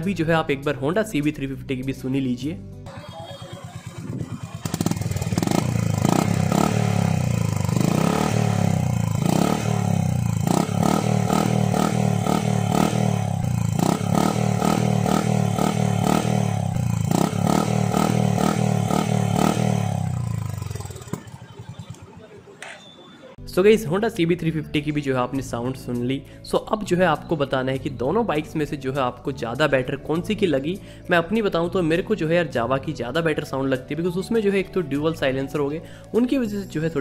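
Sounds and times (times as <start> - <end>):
motorcycle exhaust note: 2.9 - 22.7.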